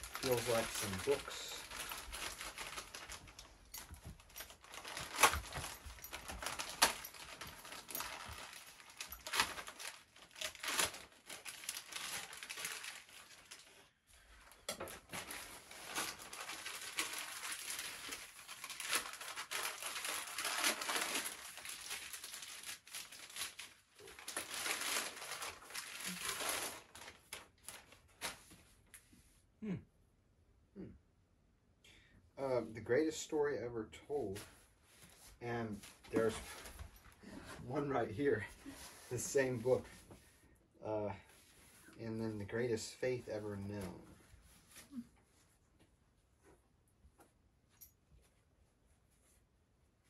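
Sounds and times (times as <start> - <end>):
plastic wrapping tearing and crumpling: 0.0 - 28.6, 35.7 - 36.9.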